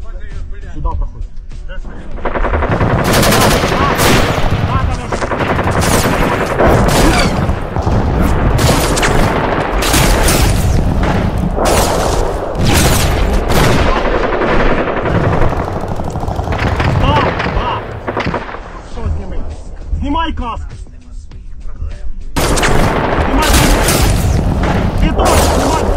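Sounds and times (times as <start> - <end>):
rifle shots and bursts: 2.1 - 19.0, 22.4 - 25.9.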